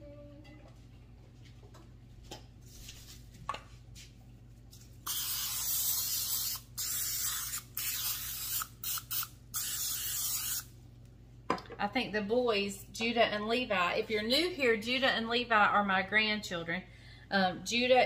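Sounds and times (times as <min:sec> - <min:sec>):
aerosol spray hissing: 0:05.1 - 0:10.6.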